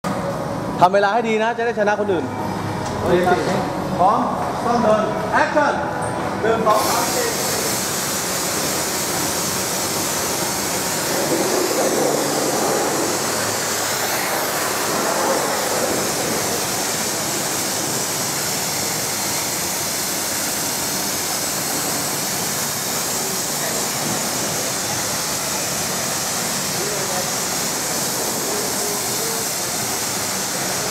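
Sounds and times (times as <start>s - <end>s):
pressure washer spraying water: 6.7s - 30.9s.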